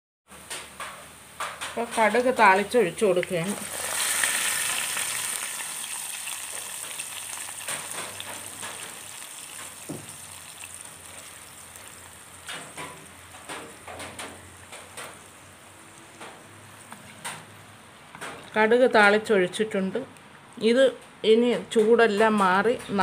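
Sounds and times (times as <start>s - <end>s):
hot oil sizzling: 0.3s - 18.4s
pops and crackles: 3.2s - 15.2s.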